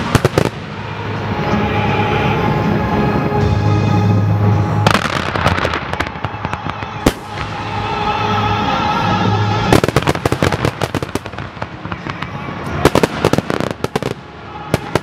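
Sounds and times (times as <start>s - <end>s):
fireworks bangs and crackles: 0.0s - 1.6s, 4.8s - 8.4s, 9.2s - 15.0s
music: 0.0s - 15.0s.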